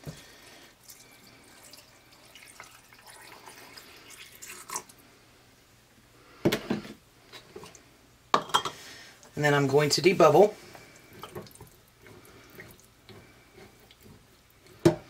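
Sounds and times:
liquid trickling into a jar: 0.8s - 5.0s, 10.8s - 14.7s.

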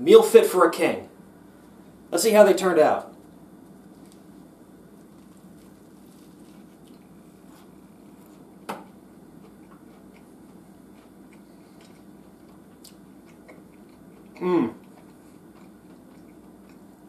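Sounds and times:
low steady hum: 0.0s - 17.0s
person chewing crunchy food: 3.7s - 17.0s.

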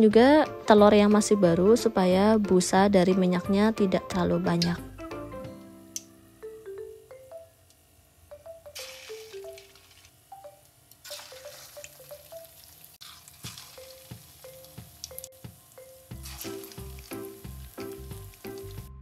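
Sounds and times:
music with plucked notes: 0.0s - 7.5s, 13.5s - 19.0s
food sizzling in hot oil: 8.8s - 10.3s, 11.0s - 18.9s
bass beat: 16.1s - 19.0s.

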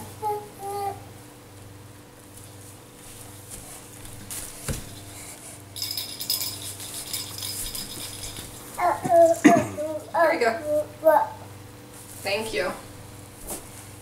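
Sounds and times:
tinsel and ornaments rattling: 4.9s - 9.5s.

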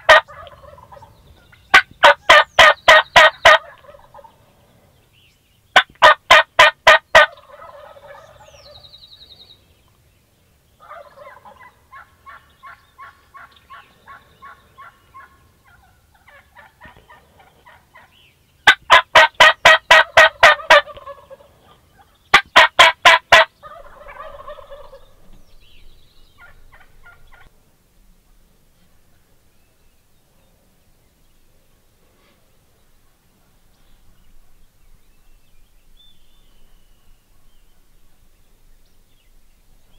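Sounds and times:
turkeys gobbling: 0.0s - 4.4s, 5.8s - 8.9s, 10.8s - 25.2s, 26.4s - 27.5s
quieter turkey calls: 0.0s - 4.5s, 5.8s - 9.3s, 10.8s - 25.4s, 26.3s - 27.5s.

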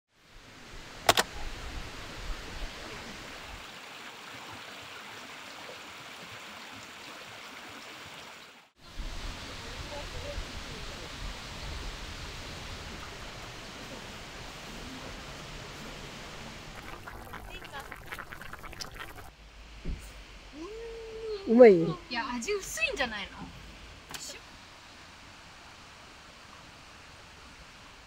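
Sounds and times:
stream rushing over boulders: 0.2s - 19.3s
sharp click: 1.0s - 1.3s.

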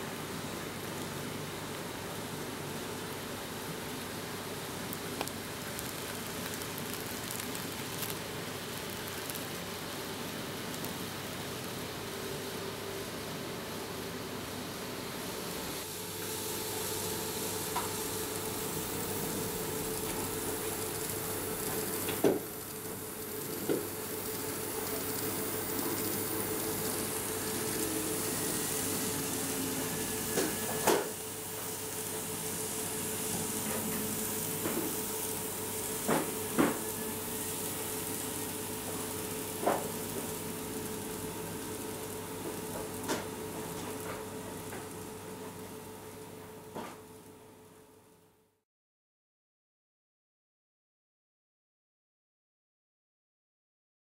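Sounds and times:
model train whirring: 16.4s - 45.6s.

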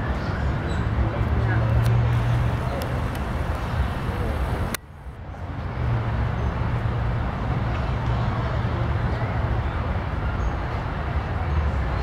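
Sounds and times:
low outdoor rumble: 0.0s - 6.0s.

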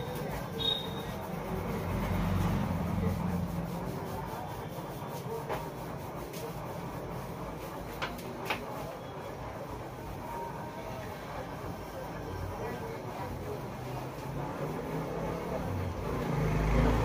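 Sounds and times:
fingers rubbing through hair: 0.0s - 8.7s.

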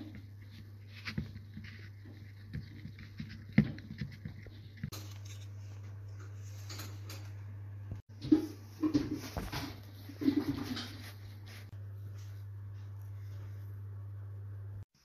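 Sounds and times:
steady low hum: 0.0s - 15.0s.

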